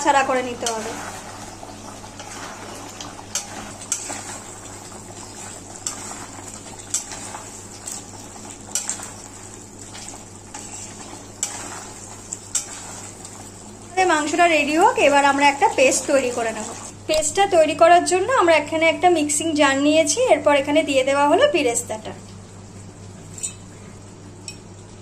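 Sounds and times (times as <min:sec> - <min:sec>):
gravy sizzling: 0:00.0 - 0:25.0
spatula scraping a pan: 0:02.2 - 0:04.6, 0:09.9 - 0:13.3.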